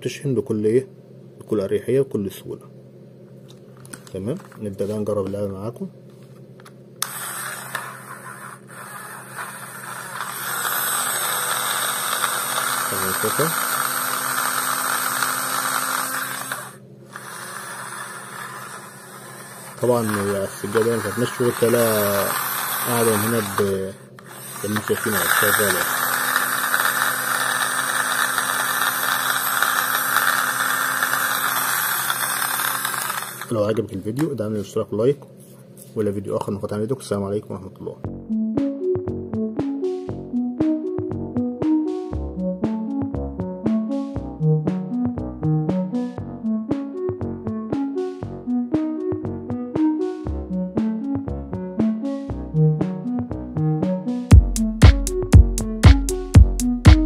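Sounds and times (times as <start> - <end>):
toy train motor whirring: 7.0 - 33.7.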